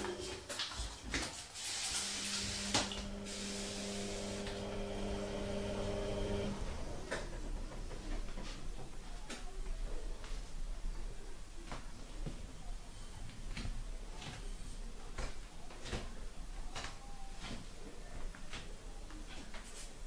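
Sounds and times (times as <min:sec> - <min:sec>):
aerosol can spraying: 0:01.6 - 0:04.6
steady hum: 0:01.8 - 0:11.6.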